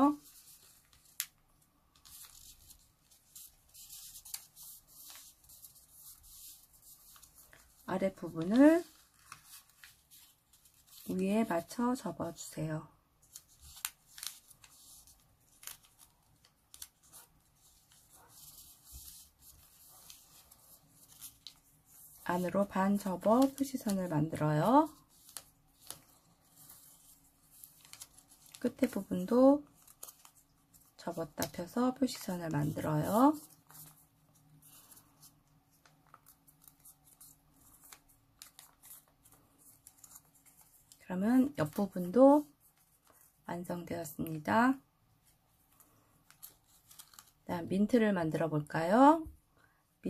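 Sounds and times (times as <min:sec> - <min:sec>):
paper rustling while folded: 0:00.0 - 0:12.5, 0:13.2 - 0:44.5, 0:45.2 - 0:47.6
soft paper clicks: 0:00.3 - 0:05.8, 0:07.0 - 0:11.1, 0:13.2 - 0:22.1, 0:25.1 - 0:29.0, 0:29.6 - 0:31.6, 0:33.4 - 0:41.0, 0:45.7 - 0:47.4.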